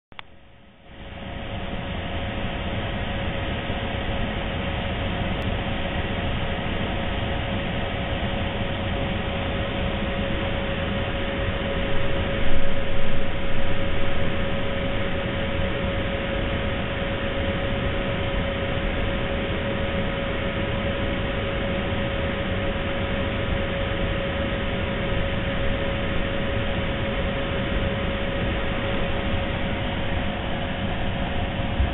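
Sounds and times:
constant whine: 0.1 - 31.9
mechanical hum and hiss: 0.2 - 31.9
low rumble: 11.9 - 15.2, 29.8 - 31.9.

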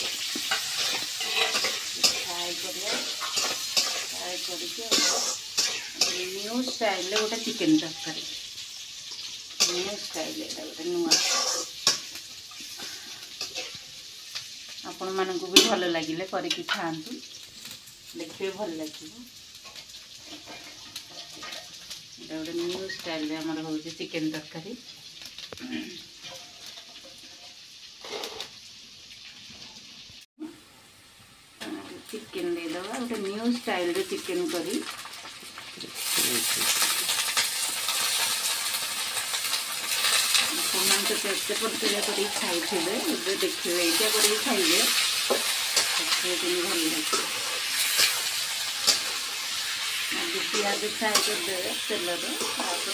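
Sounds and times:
spoon clinking and scraping: 0.0 - 2.3
metal spatula scraping pan: 0.0 - 8.2, 9.1 - 12.8, 13.4 - 13.9, 26.2 - 28.5, 39.8 - 52.9
onions frying: 0.0 - 52.9.

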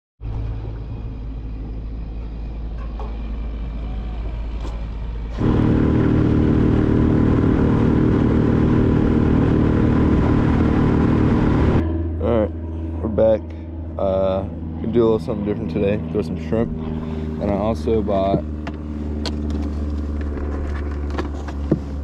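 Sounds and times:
electric motor humming: 5.2 - 12.1.

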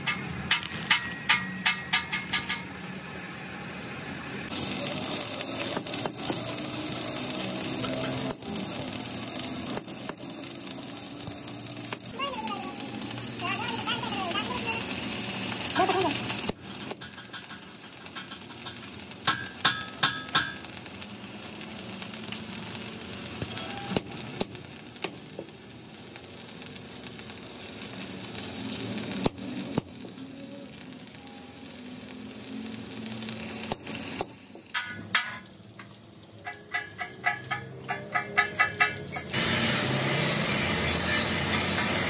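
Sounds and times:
welding arc crackling: 0.0 - 2.8, 4.3 - 42.0
sharp metallic taps: 34.2 - 39.3.

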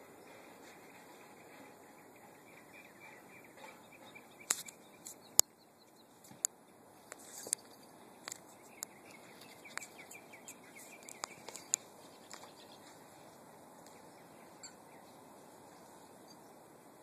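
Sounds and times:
faint chirping: 0.0 - 17.0
sharp clicks: 9.7 - 12.5.

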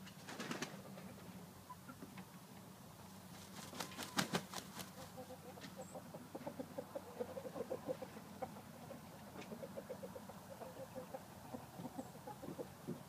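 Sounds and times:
rooster clucking: 3.8 - 13.0.

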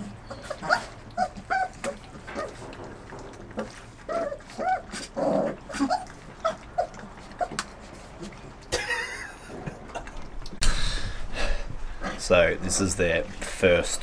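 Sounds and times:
puppies whimpering and yipping: 0.0 - 8.6.

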